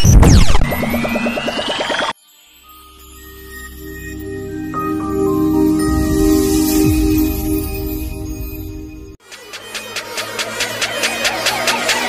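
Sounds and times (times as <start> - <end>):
low tone sliding downward: 0.1 - 2.1
sustained chord with whooshing rise: 0.6 - 9.2.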